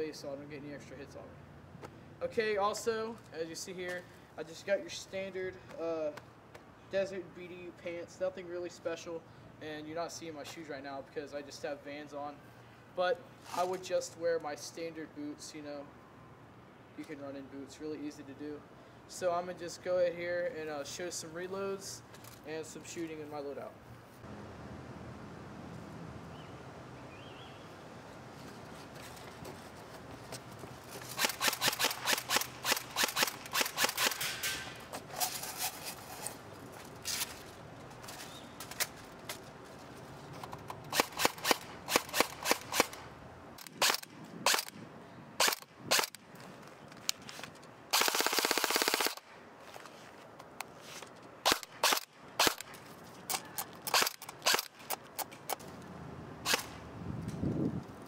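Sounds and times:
airsoft rifle firing: 31.1 - 34.7, 40.9 - 43.0, 43.7 - 44.7, 47.9 - 49.3, 51.4 - 52.7, 53.9 - 54.8.

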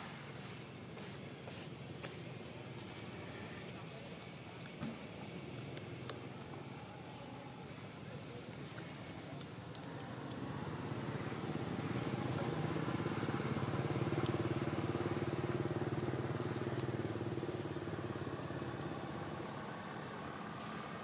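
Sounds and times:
vehicle engine passing by: 10.3 - 21.0.

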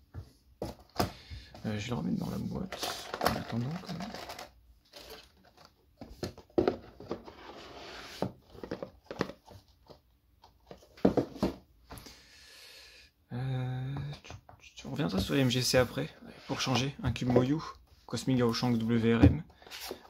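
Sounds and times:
cardboard boxes knocking and rustling: 6.0 - 9.7, 10.6 - 11.7.

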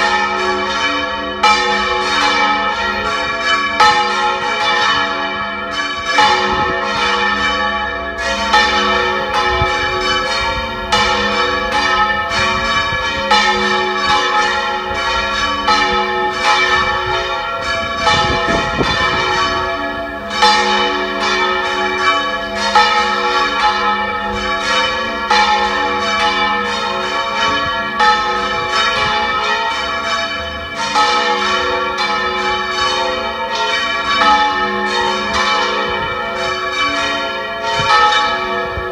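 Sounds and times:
church bells pealing: 0.0 - 38.9
wind buffeting microphone: 6.2 - 7.2, 9.1 - 20.4, 37.6 - 38.9.

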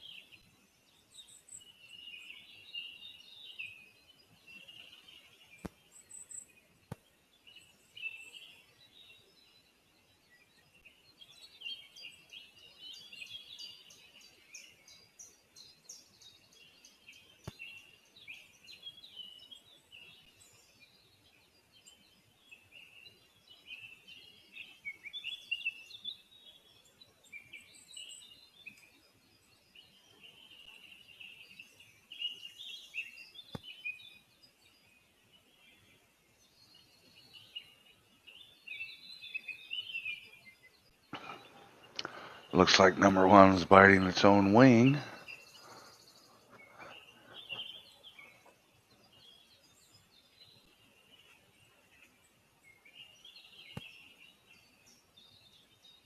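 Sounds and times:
small birds chirping: 0.0 - 56.0
faint clicks: 41.1 - 42.2.

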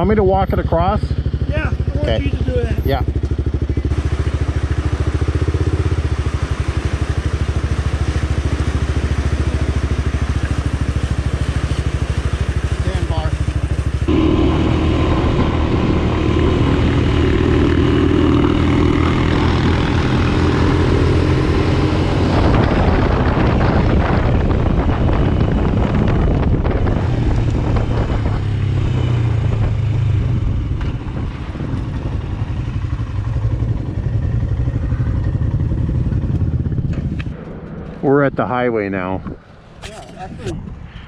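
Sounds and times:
motorcycle engine running: 0.0 - 40.8
wind rush over microphone: 14.0 - 41.0.

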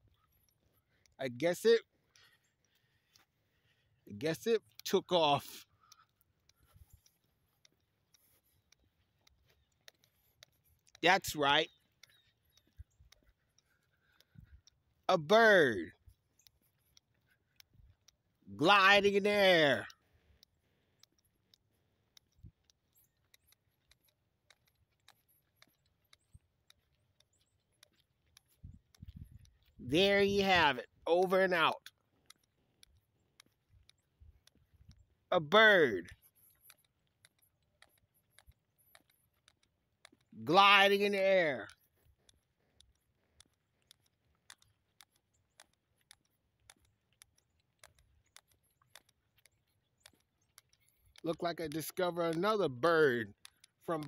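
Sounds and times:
faint clicks: 0.0 - 54.0.

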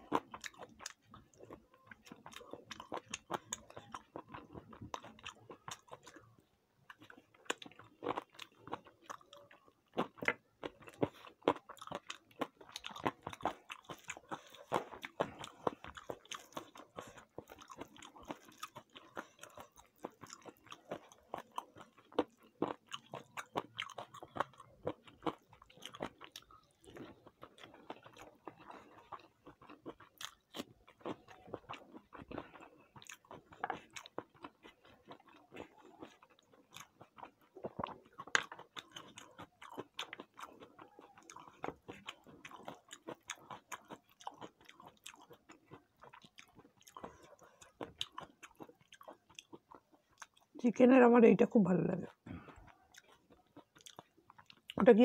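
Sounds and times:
person chewing and crunching food: 0.0 - 50.7, 51.6 - 55.0.

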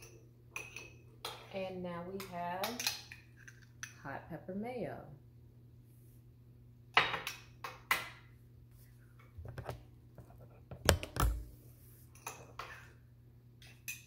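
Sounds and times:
spoon and bowl clinking on countertop: 0.0 - 1.5
low steady hum: 8.2 - 14.0.

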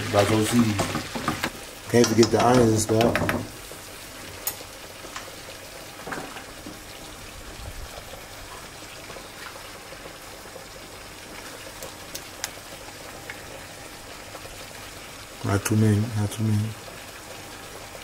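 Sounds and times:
beef sizzling in frying pan: 0.0 - 18.0
vegetables clicking into pan: 0.7 - 3.5, 11.7 - 12.6.

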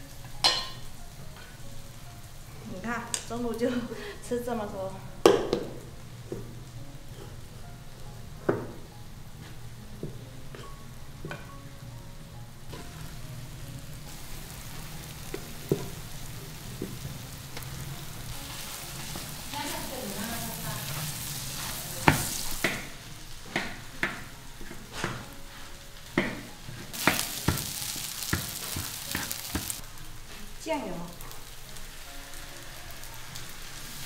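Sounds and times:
rice sizzling in a wok: 0.0 - 34.0
spatula scraping and knocking wok: 12.7 - 30.5.

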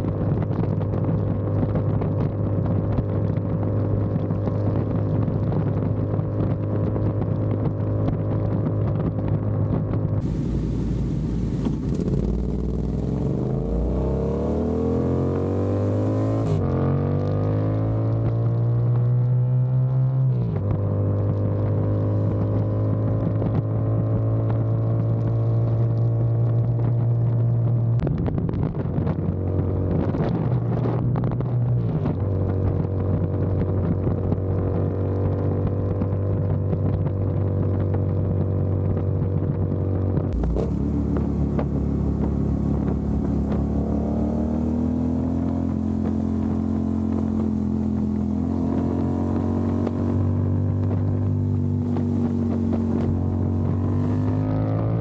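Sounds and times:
motorcycle engine running: 0.0 - 19.0, 30.9 - 55.0
road and wind noise: 0.0 - 55.0.

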